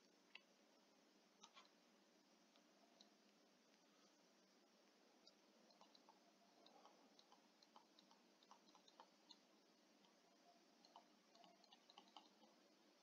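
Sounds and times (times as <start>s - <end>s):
stylus tapping on tablet screen: 5.3s - 9.4s, 10.8s - 12.6s.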